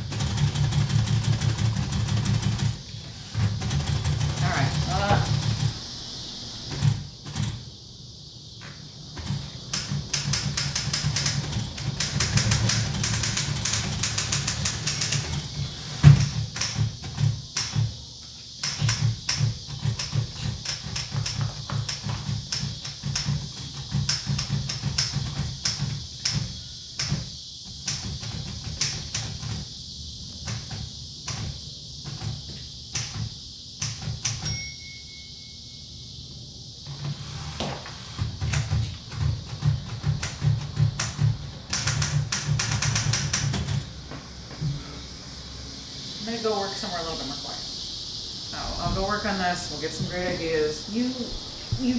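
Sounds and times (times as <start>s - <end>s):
low hum and hiss: 0.0s - 51.9s
typewriter keystrokes: 9.2s - 17.9s, 18.6s - 27.2s, 38.3s - 43.8s
typewriter keys clacking: 9.8s - 15.6s
low steady hum: 44.0s - 51.9s.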